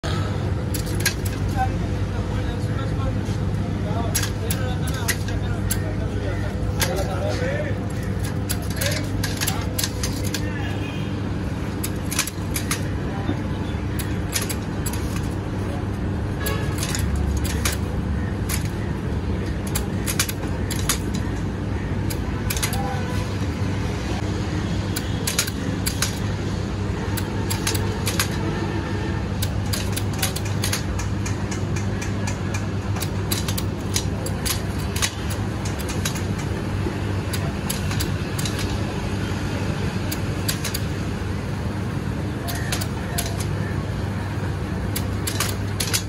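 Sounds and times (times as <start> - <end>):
fry cutter clacking: 4.1 - 10.5, 11.8 - 13.0, 13.9 - 15.5, 16.4 - 23.2, 25.0 - 26.3, 27.1 - 28.5, 29.4 - 38.9, 40.0 - 41.0, 42.4 - 43.8, 44.8 - 46.0.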